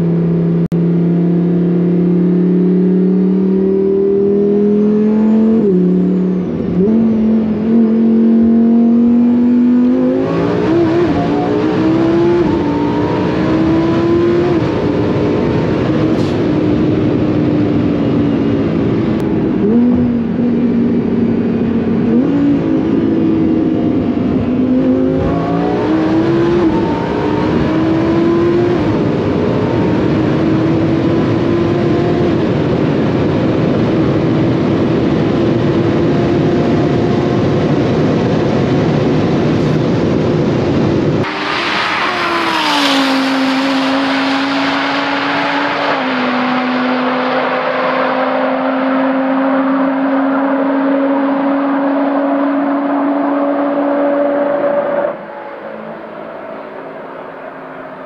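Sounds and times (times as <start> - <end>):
car engine at high speed: 0.0 - 58.0
wind and road roar: 0.0 - 58.0
car passing by: 41.3 - 48.7.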